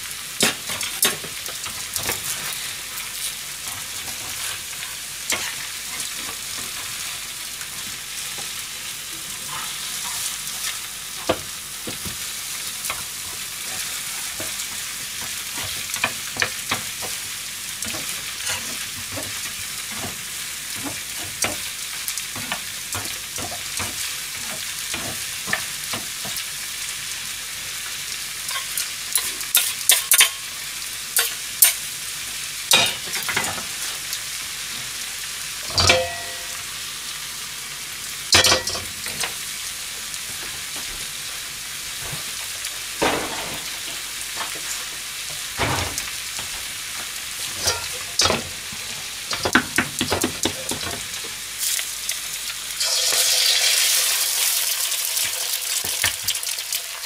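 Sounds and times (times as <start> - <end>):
food sizzling in a pan: 0.0 - 57.0
utensil knocking against pan: 49.3 - 51.0.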